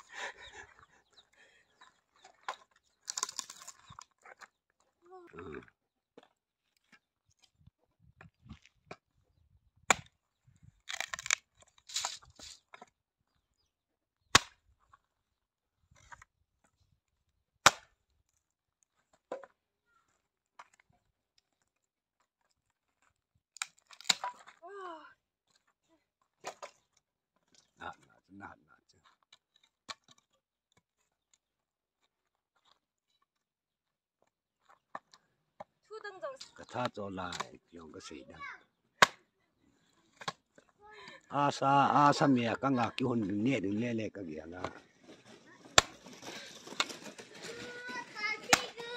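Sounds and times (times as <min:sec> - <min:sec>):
firewood knocking and cracking: 0:02.3 - 0:04.0, 0:44.6 - 0:48.9
wood rustling and scraping: 0:10.9 - 0:12.8, 0:43.2 - 0:48.9
axe chopping wood: 0:14.3 - 0:14.6, 0:17.6 - 0:17.9, 0:23.9 - 0:24.5, 0:39.0 - 0:39.3, 0:45.8 - 0:46.0, 0:48.5 - 0:48.7.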